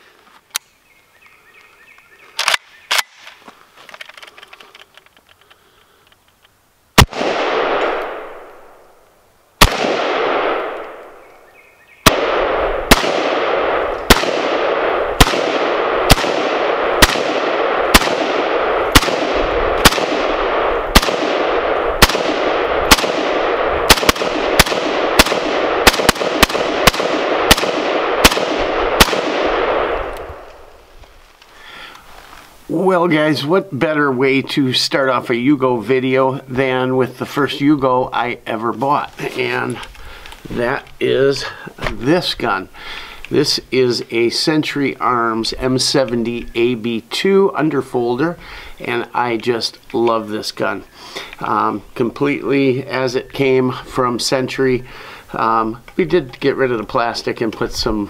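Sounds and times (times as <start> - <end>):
rifle shots echoing: 7.0 - 8.9, 9.6 - 11.3, 12.0 - 30.8.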